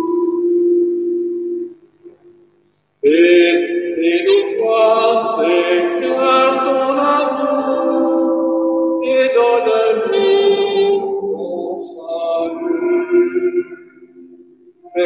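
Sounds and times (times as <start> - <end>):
sustained tones: 0.0 - 2.4, 3.0 - 15.0
man chanting: 3.0 - 8.4, 9.0 - 13.8
held instrumental note: 3.7 - 15.0.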